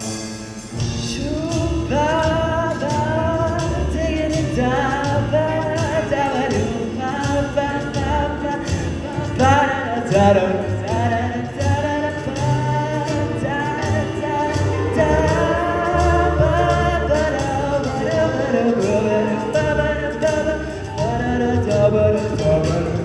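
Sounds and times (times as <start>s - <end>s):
sung bass line: 0.0s - 23.0s
vocal percussion beat: 0.0s - 23.0s
soloist singing into microphone: 1.0s - 23.0s
choir singing in harmony: 12.9s - 20.8s.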